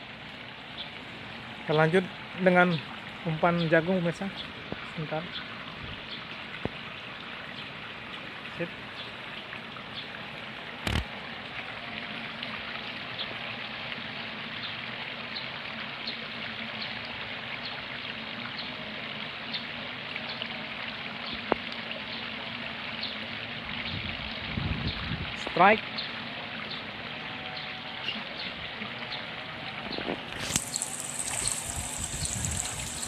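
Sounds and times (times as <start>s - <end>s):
pond aerator splashing water: 10.7s - 12.4s, 29.7s - 33.0s
sharp click: 10.8s - 11.1s.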